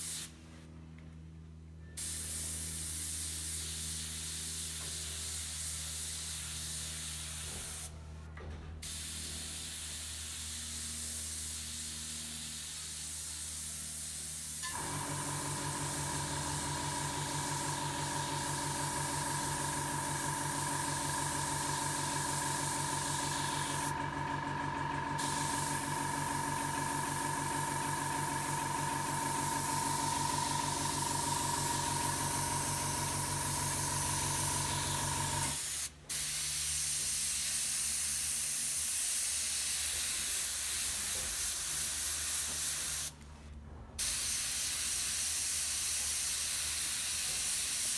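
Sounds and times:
mechanical hum with whine: 0.0 - 2.0, 14.6 - 36.0
airbrush spraying hiss: 2.0 - 7.9, 8.8 - 14.8, 15.8 - 23.9, 25.2 - 43.1, 44.0 - 47.9.

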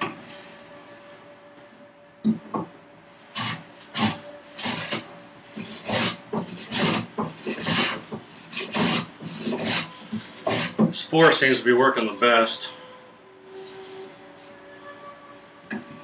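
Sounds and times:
hand plane scraping wood: 3.4 - 5.0, 5.6 - 11.0.

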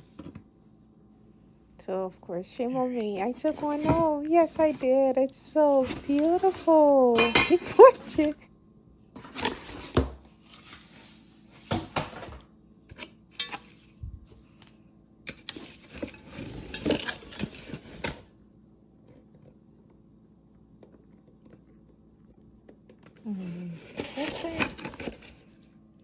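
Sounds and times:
cardboard packaging tearing: 5.7 - 7.2, 15.3 - 18.3, 23.1 - 25.6.

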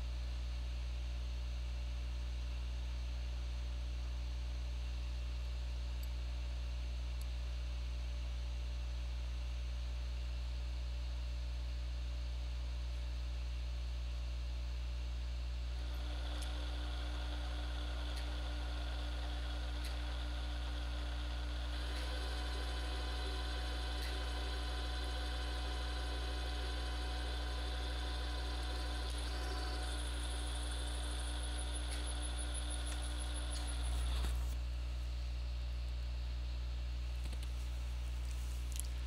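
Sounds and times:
milling machine motor hum: 15.8 - 34.6.

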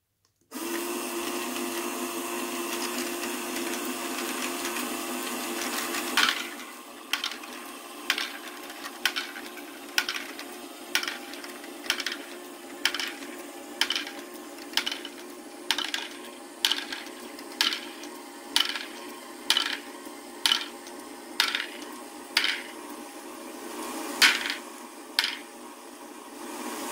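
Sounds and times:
motor and gears humming: 0.5 - 26.9
plastic balls clicking and clacking: 5.5 - 22.7, 24.2 - 24.6, 25.2 - 25.4.

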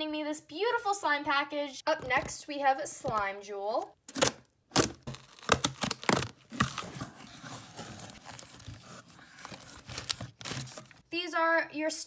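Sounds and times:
packing tape slit with blade: 4.1 - 7.0
packaging crinkling and rustling: 4.1 - 11.0.

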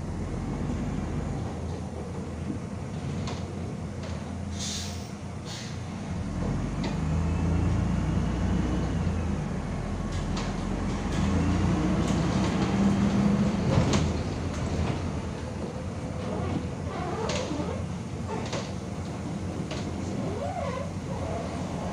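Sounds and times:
bus engine hum: 0.0 - 21.9
road noise: 0.0 - 21.9
bus body clicks and rattles: 1.3 - 4.6, 5.2 - 7.1, 9.8 - 21.9.

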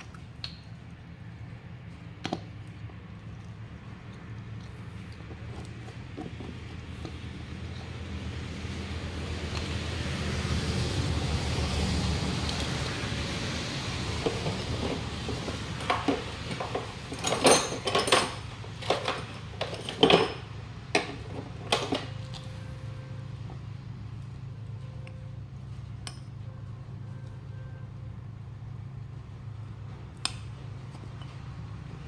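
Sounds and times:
metal tools clinking: 14.4 - 22.2.

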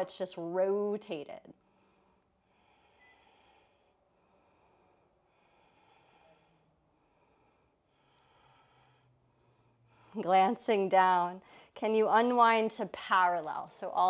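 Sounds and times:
faint breathing: 1.6 - 10.2, 11.4 - 11.8.

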